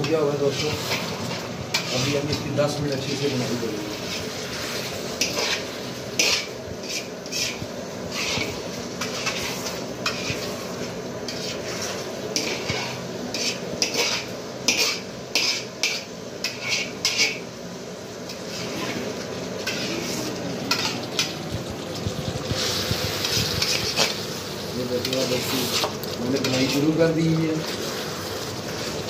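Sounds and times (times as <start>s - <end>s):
metal spatula scraping a wok: 0.0s - 17.5s, 18.2s - 21.4s, 22.3s - 24.2s, 24.9s - 27.1s
frying sizzle: 0.0s - 29.0s.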